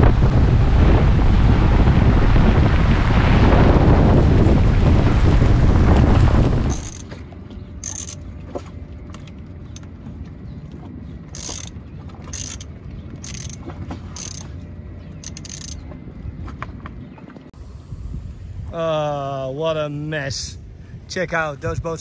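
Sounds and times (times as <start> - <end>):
wind blasting on microphone: 0.0 - 7.1, 15.8 - 18.9
ratchet wrench clicking: 6.7 - 7.0, 7.8 - 8.2, 11.4 - 11.7, 12.3 - 13.6, 14.2 - 14.5, 15.2 - 15.8.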